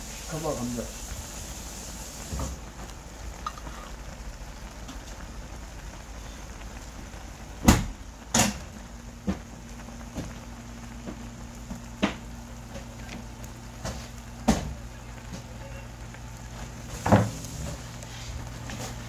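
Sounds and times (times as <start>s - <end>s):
noodles boiling in a pot: 0.0s - 19.0s.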